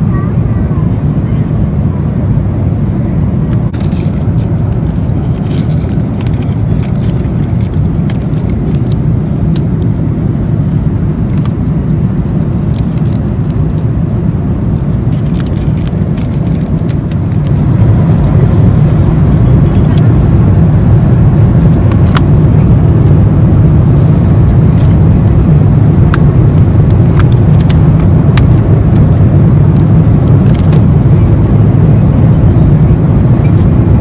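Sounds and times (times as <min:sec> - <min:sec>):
vehicle rumble from inside: 0:00.0 - 0:34.0
light clicks and crackles: 0:03.7 - 0:09.9, 0:12.2 - 0:17.6, 0:26.9 - 0:29.2, 0:29.8 - 0:31.1.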